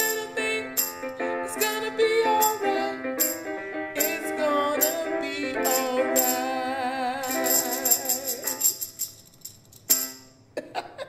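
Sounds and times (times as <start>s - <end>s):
electronic keyboard chord: 0.0s - 6.8s
person singing: 0.0s - 8.8s
tambourine shakes: 0.0s - 10.4s.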